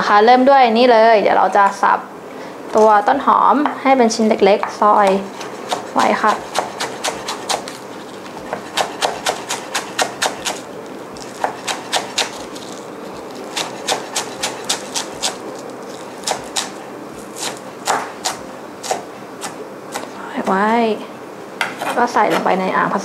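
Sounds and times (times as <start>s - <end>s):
knife chopping on wooden board: 5.1s - 10.6s, 11.2s - 12.8s, 13.4s - 16.8s, 17.4s - 20.1s.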